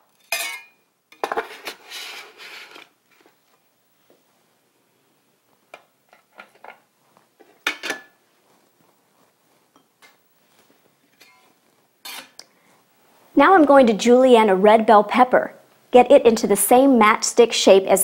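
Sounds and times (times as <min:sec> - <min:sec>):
glass bowls clinking: 0:00.2 - 0:00.8.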